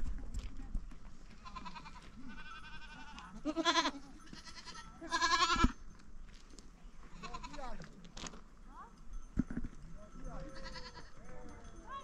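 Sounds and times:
goat bleating: 0:01.4 - 0:05.8, 0:07.1 - 0:07.7, 0:10.4 - 0:11.1.

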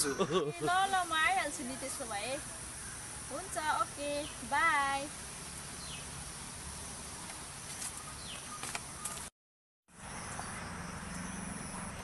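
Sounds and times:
steady background hiss: 0:00.0 - 0:09.2
falling bird chirps: 0:05.8 - 0:09.3.

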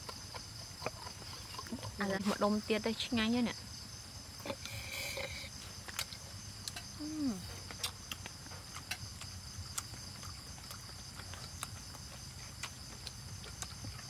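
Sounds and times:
crickets chirring: 0:00.0 - 0:14.0
person humming: 0:07.0 - 0:07.5.

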